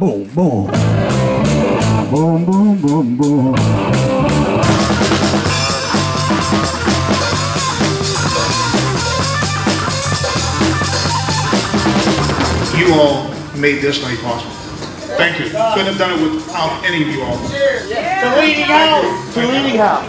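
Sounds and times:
electric guitar: 0.7 - 2.6, 3.2 - 15.6
drum kit with cymbals: 0.7 - 18.2.

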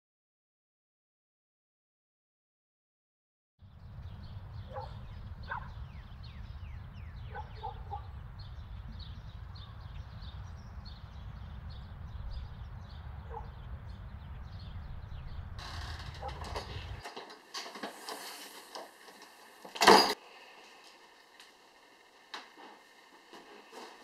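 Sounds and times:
steady low rumble: 3.6 - 17.0
small birds chirping: 3.6 - 17.2.

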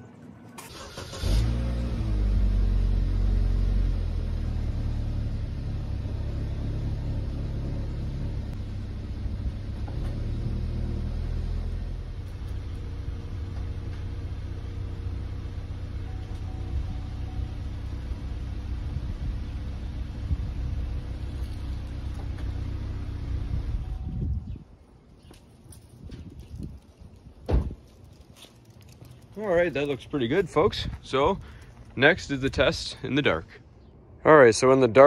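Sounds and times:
car engine starting and idling: 0.0 - 24.6.

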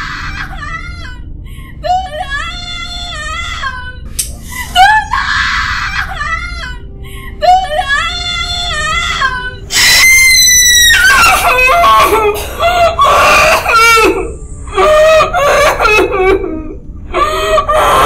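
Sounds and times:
woman crying and sobbing: 0.0 - 18.0
woman screaming: 9.7 - 12.4.

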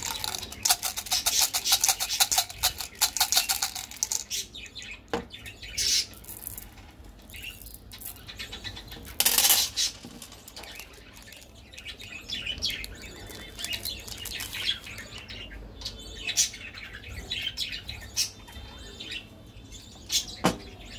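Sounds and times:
foil wrapper crinkling and tearing: 0.0 - 4.3, 10.1 - 15.2
birds chirping: 0.0 - 20.9.

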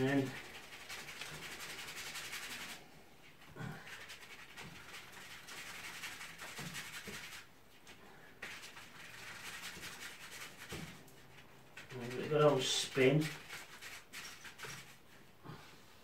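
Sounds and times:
paintbrush scrubbing in container: 0.0 - 15.3.

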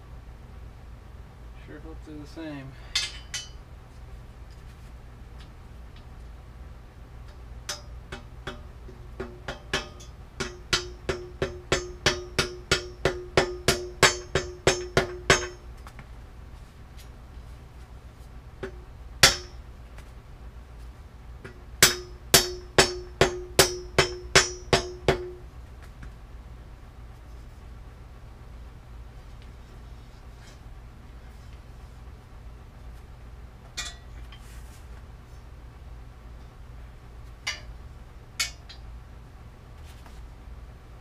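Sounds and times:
metal frame ringing: 2.9 - 3.6, 7.7 - 15.7, 33.8 - 34.4, 37.4 - 37.8, 38.4 - 38.8
hammer tapping steel frame: 7.2 - 15.7, 18.6 - 19.6, 21.4 - 25.4, 37.4 - 37.8, 38.4 - 38.8.

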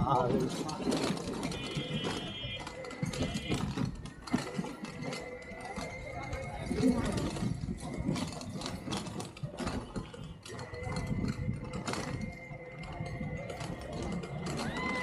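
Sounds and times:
rickshaw rattling: 0.0 - 15.0.

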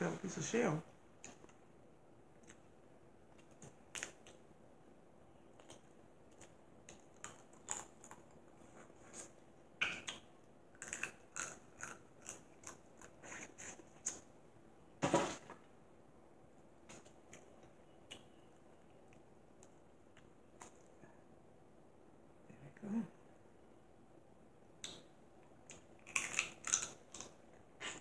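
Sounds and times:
chewing: 5.5 - 10.2, 10.8 - 14.2, 25.7 - 28.0.

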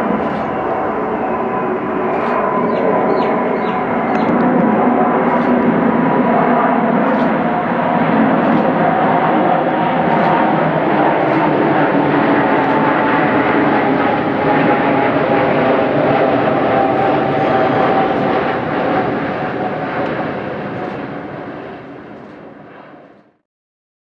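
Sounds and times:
jet rumble: 0.0 - 23.3.

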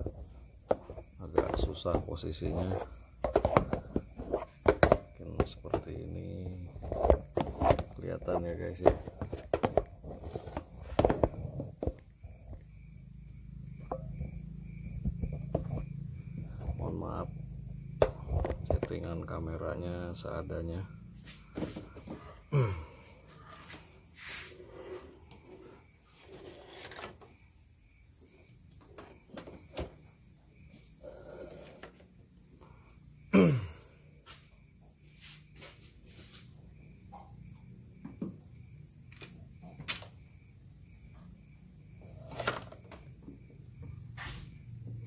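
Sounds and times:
plastic clicks and knocks: 0.0 - 5.9, 6.8 - 12.6
night insects chirping: 0.0 - 45.0.

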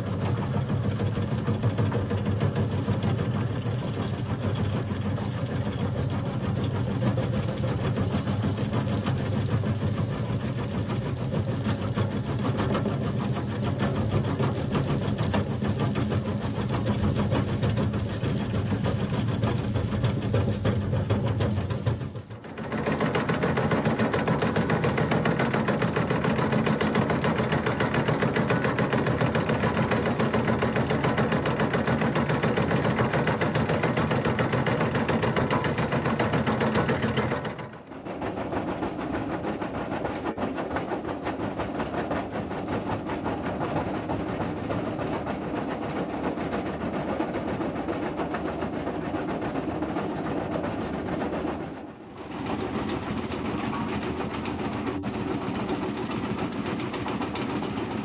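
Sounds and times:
crusher bucket rattling pounding: 0.0 - 58.0
excavator engine: 0.0 - 58.0.

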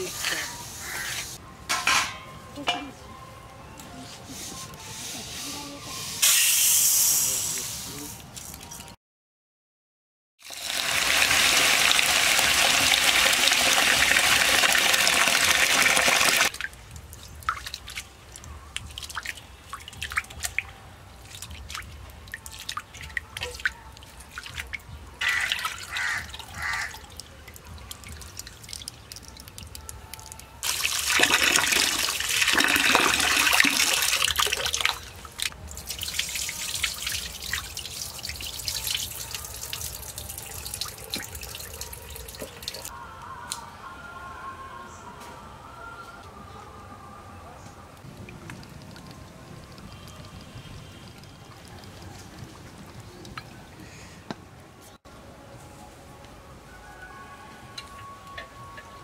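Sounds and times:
water pouring into steel bowl: 10.4 - 16.6, 30.6 - 42.9.

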